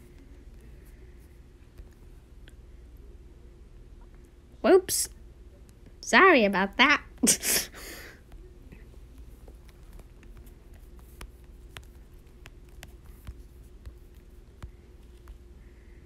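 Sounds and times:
low steady hum: 0.0 - 16.0
fingertip tapping touchscreen: 8.3 - 15.4.

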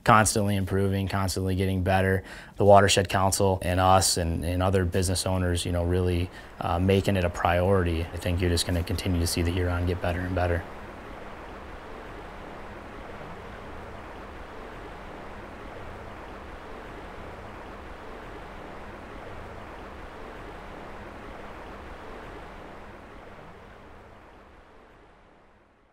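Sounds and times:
river water rushing: 5.6 - 25.0.

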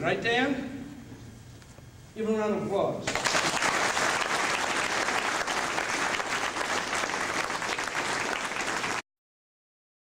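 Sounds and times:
audience applauding: 3.1 - 9.0.

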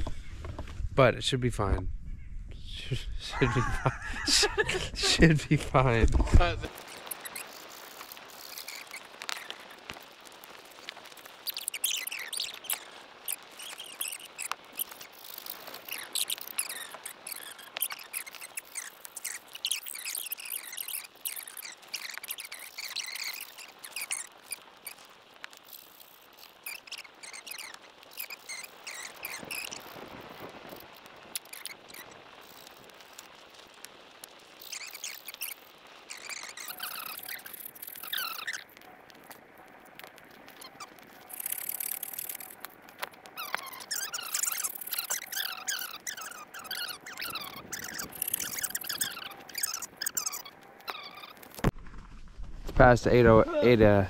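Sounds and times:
high animal chirps and whistles: 6.8 - 9.7, 11.1 - 33.4, 34.6 - 38.7, 40.5 - 42.6, 43.3 - 51.5.

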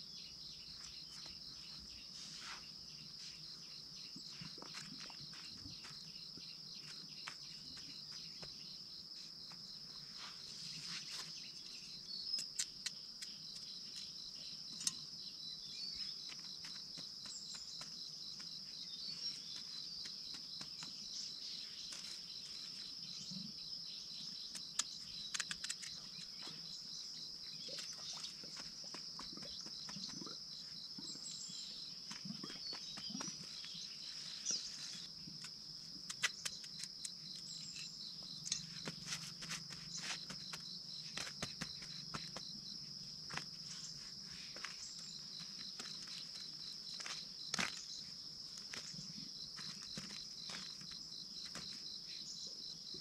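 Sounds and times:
insects trilling: 0.0 - 53.0.

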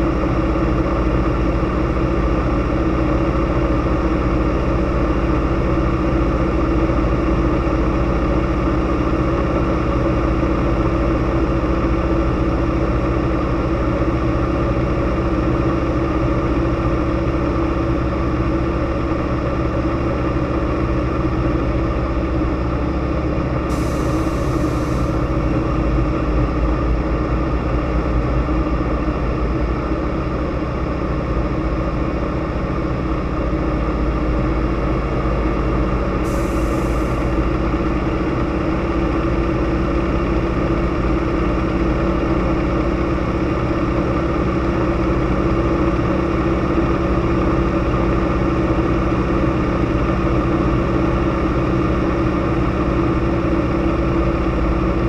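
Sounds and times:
propeller engine droning: 0.0 - 55.0
rush of airflow: 23.7 - 25.5, 36.2 - 37.6.

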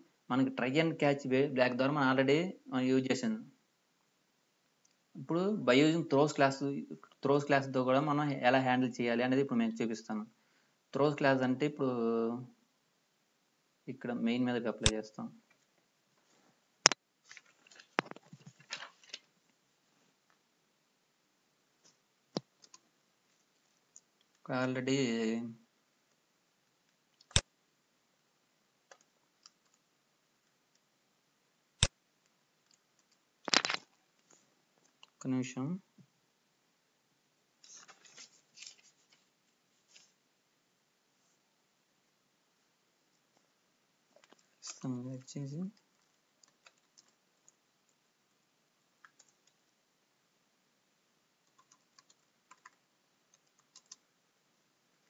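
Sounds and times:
faint keyboard keystrokes: 51.5 - 54.0.

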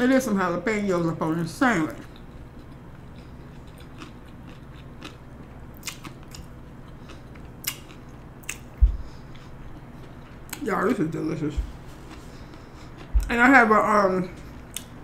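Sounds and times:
person chewing food: 2.0 - 13.5, 14.4 - 15.0
dull low thump: 8.8 - 9.2, 11.5 - 11.9.

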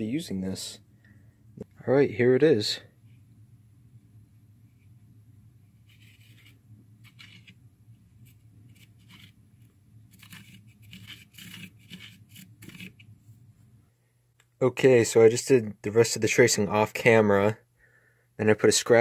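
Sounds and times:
steady low hum: 0.0 - 19.0
marker scratching on wood: 5.8 - 7.6, 8.2 - 9.4, 10.1 - 13.1.

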